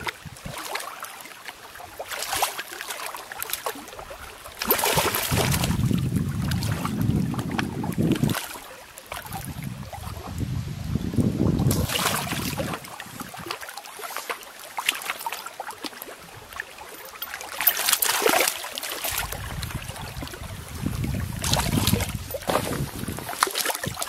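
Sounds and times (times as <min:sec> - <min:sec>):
wind on microphone: 0:00.0 - 0:00.6, 0:04.6 - 0:13.6, 0:19.1 - 0:24.0
fish splashing in shallow water: 0:00.0 - 0:24.0.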